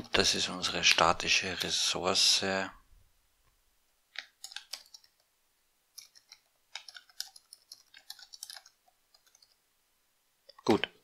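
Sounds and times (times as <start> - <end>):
typing on keyboard: 4.2 - 5.3, 6.0 - 9.6.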